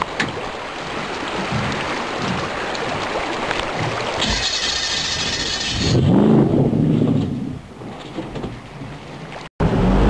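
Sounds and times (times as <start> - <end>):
water rushing: 0.0 - 6.7
jet boat engine running: 3.8 - 6.7, 9.6 - 10.0.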